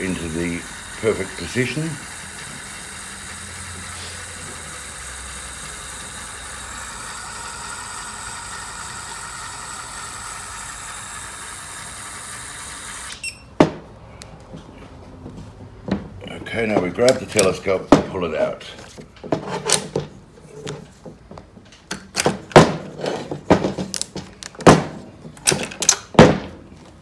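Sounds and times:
drill motor running: 0.0 - 13.2.

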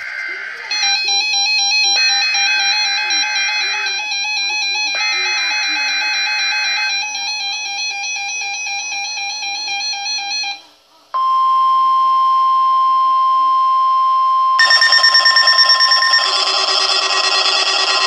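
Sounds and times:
steady alert tone: 0.7 - 9.6, 14.6 - 18.0
electronic tune alternating pitches: 0.7 - 10.5
rapidly pulsing alarm: 0.7 - 10.6, 14.6 - 18.0.

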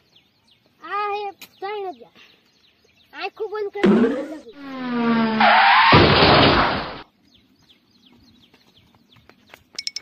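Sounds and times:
comedy sound effect tone: 3.8 - 5.4.

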